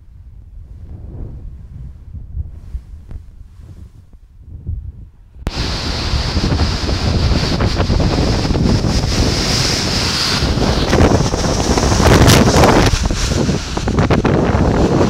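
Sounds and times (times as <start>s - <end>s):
strong wind blowing: 0.0s - 15.0s
wind buffeting microphone: 0.0s - 15.0s
driving rain: 5.5s - 15.0s.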